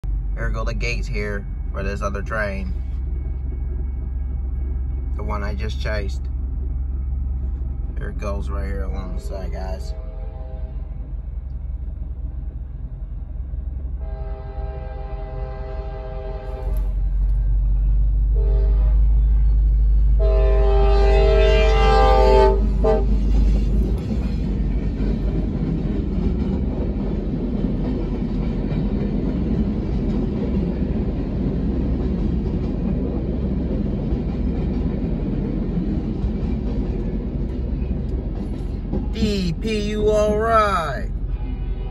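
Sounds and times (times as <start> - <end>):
freight cars rumbling and clattering: 0.0 - 41.9
locomotive engine rumble: 0.0 - 41.9
locomotive horn blasts: 9.8 - 10.9, 14.0 - 16.8, 18.4 - 19.0, 20.2 - 23.2, 41.2 - 41.9.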